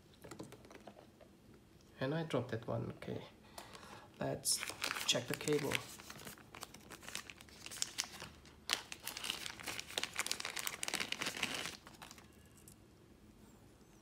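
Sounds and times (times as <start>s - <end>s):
plastic pouch crinkling: 4.5s - 12.7s.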